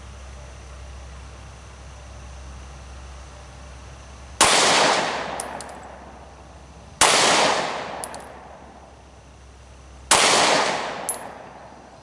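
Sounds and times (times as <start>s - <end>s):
pistol shots: 4.4s - 6.0s, 7.0s - 8.6s, 10.1s - 11.8s
light metallic clink: 5.3s - 6.0s, 7.9s - 8.4s, 11.0s - 11.6s.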